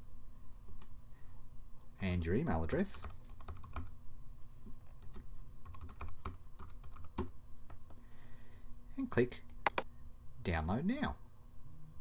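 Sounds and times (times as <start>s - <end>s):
keyboard typing: 3.0s - 3.9s, 5.0s - 7.4s, 9.6s - 9.8s.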